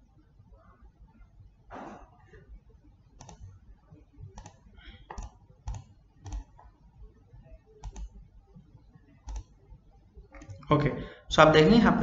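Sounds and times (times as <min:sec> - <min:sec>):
computer mouse clicking: 0:03.2 - 0:03.6, 0:04.2 - 0:10.7.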